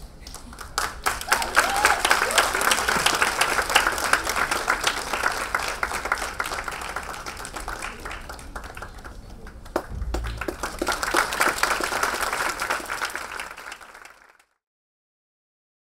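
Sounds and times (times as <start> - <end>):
audience applauding: 0.4 - 14.5.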